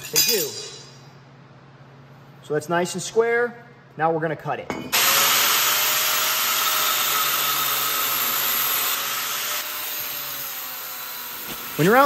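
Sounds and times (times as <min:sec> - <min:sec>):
angle grinder spinning: 0:05.0 - 0:12.0.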